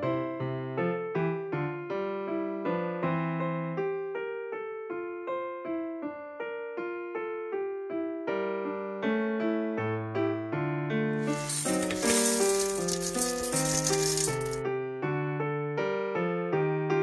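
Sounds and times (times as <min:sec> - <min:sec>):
gentle piano music: 0:00.0 - 0:11.1.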